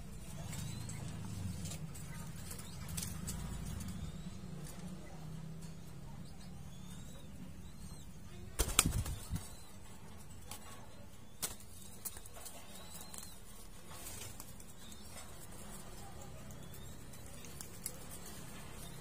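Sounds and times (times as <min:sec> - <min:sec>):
dove wings flapping: 0:08.6 - 0:09.5.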